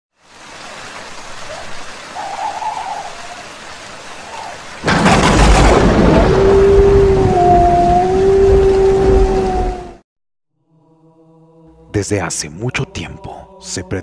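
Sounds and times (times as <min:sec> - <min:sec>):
rain pattering: 0:00.2 - 0:06.4
thunderclap rolling rumble: 0:04.8 - 0:10.0.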